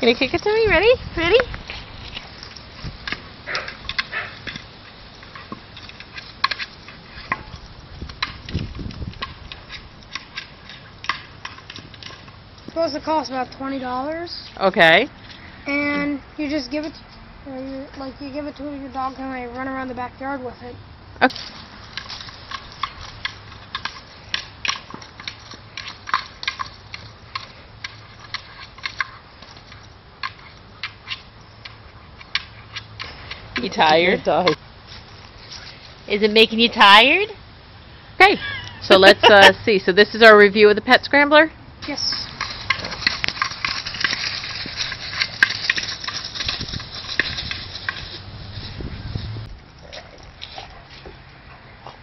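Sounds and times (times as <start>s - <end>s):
dry leaves crackling underfoot: 41.8s - 49.7s.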